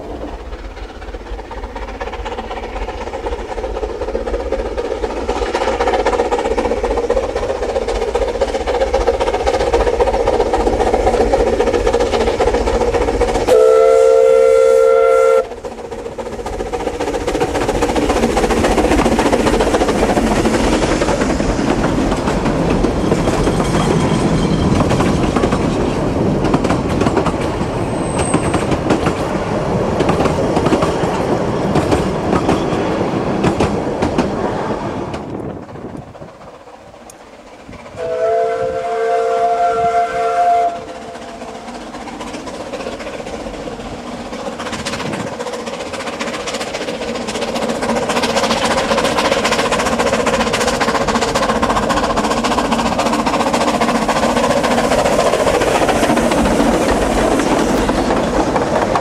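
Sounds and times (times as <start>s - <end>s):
steam locomotive approaching: 0.0s - 59.0s
train wheels clicking over rail joints: 0.0s - 59.0s
steam whistle: 13.5s - 15.6s, 37.9s - 41.5s.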